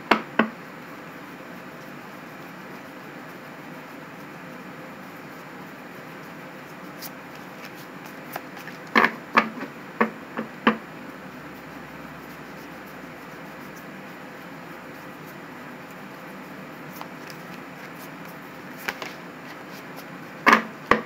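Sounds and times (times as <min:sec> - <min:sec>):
cards being shuffled: 0:06.9 - 0:09.5, 0:16.8 - 0:21.0
card taps and clacks: 0:18.8 - 0:19.2, 0:20.5 - 0:21.0.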